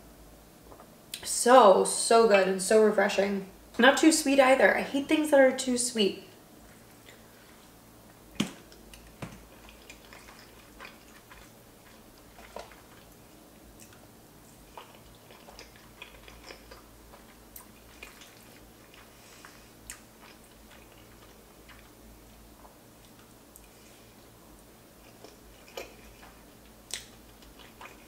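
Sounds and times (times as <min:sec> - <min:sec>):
chewing and wet mouth sounds: 0:06.6 - 0:28.0
mouth clicks and smacks: 0:25.1 - 0:28.0.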